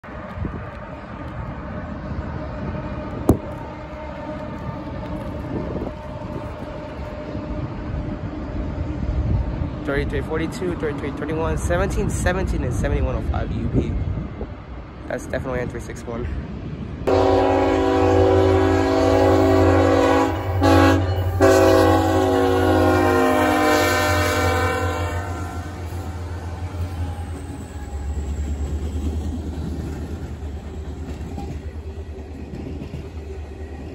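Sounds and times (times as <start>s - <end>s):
freight train crossing bridge: 0.0s - 33.9s
locomotive air horn blasts: 17.1s - 27.7s.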